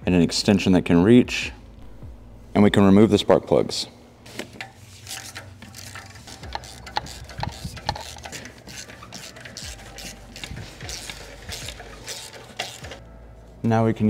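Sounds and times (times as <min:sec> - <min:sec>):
socket wrench clicking: 0:04.6 - 0:13.0.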